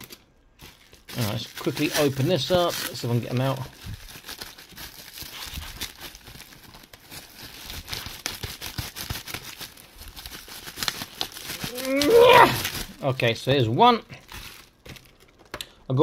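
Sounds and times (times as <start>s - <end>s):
toy packaging crinkling: 0.0s - 13.5s, 14.1s - 15.8s
small crackles and taps: 14.8s - 15.8s.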